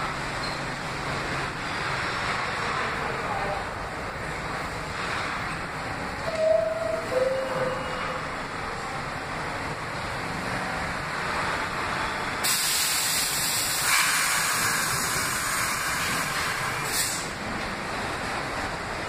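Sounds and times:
subway train running noise: 0:00.0 - 0:19.0
hiss of air: 0:12.4 - 0:17.4.

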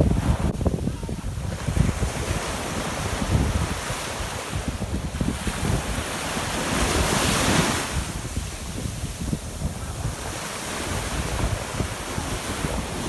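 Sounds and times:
small waves breaking on shore: 0:00.0 - 0:13.0
wind buffeting microphone: 0:00.0 - 0:13.0.

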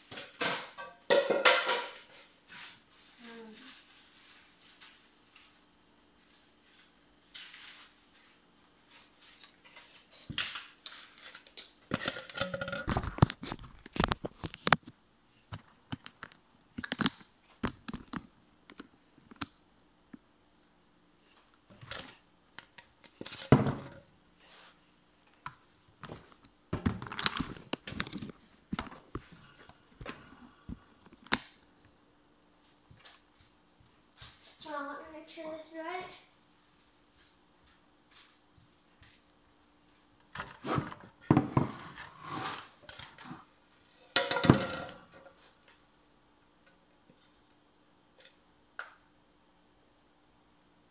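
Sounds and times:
objects knocking and clunking: 0:00.0 - 0:02.7, 0:11.9 - 0:14.9, 0:23.1 - 0:24.1, 0:25.4 - 0:31.4, 0:40.3 - 0:42.2, 0:44.1 - 0:45.4.

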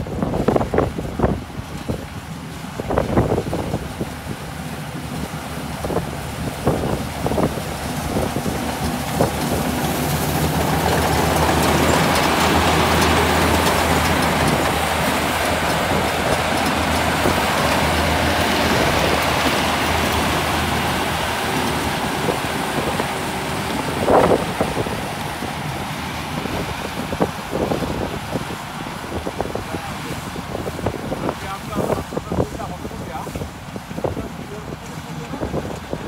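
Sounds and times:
harvester diesel engine running: 0:00.0 - 0:36.0
harvester clattering: 0:01.7 - 0:36.0.

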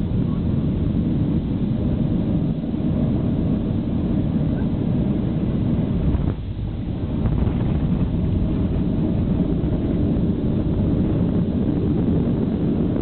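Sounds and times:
airflow over wings: 0:00.0 - 0:13.0
jet engine cabin rumble: 0:00.0 - 0:13.0.

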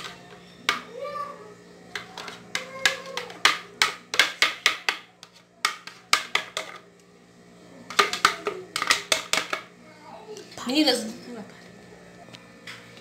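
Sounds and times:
wooden utensil knocking metal tray: 0:02.0 - 0:06.8, 0:07.9 - 0:09.6.

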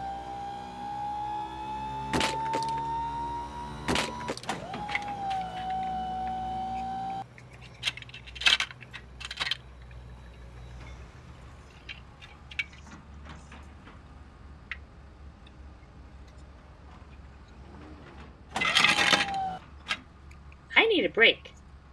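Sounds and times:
held electronic tone: 0:00.0 - 0:07.2.

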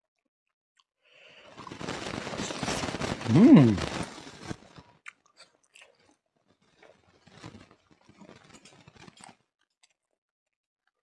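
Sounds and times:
person chewing: 0:03.3 - 0:04.0.

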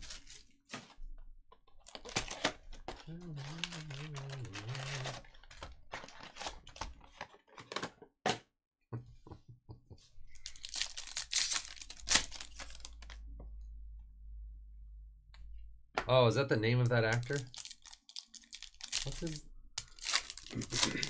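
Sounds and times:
foil wrapper crinkling and tearing: 0:00.0 - 0:00.6, 0:01.8 - 0:07.2, 0:10.3 - 0:13.2, 0:17.1 - 0:21.0.

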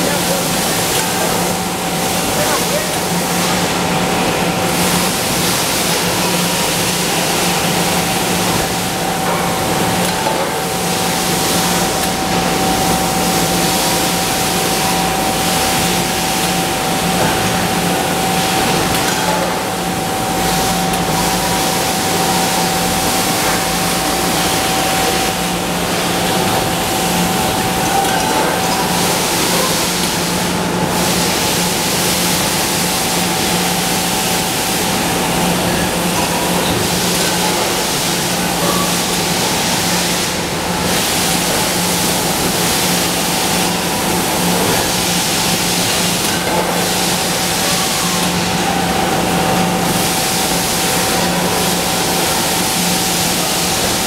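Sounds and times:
high machinery whine: 0:00.0 - 0:54.0.

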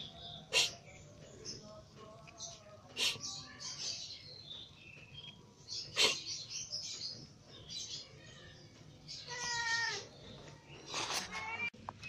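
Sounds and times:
kitten hissing: 0:00.5 - 0:00.8, 0:05.9 - 0:06.3.

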